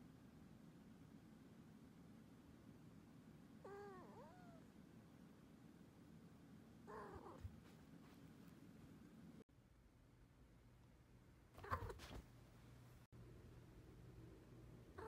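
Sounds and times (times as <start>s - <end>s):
kitten meowing faintly: 3.6s - 4.7s, 6.9s - 7.5s, 11.6s - 12.2s.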